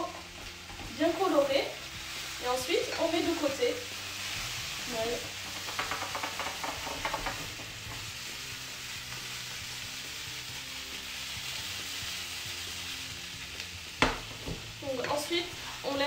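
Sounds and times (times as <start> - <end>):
vegetables sizzling in a frying pan: 0.0 - 16.0
spatula clicking and scraping: 5.3 - 8.1.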